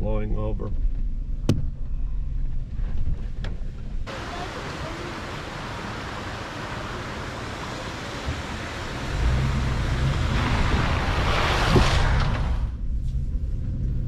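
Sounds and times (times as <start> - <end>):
low engine rumble: 0.0 - 14.0
water rushing: 4.1 - 12.7.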